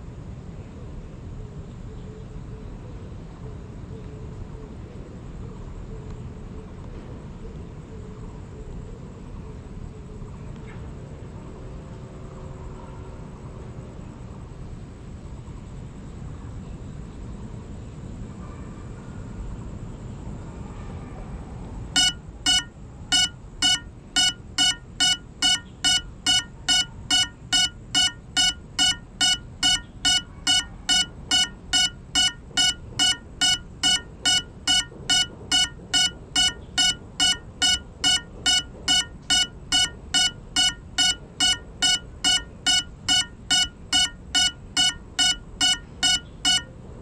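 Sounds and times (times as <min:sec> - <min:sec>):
short shrill beeps: 0:22.0 - 0:46.7.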